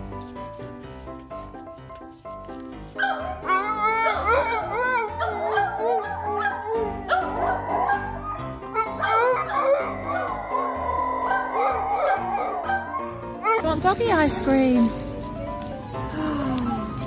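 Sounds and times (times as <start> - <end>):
background music: 0.0 - 17.0
dog howling and yipping: 3.0 - 13.6.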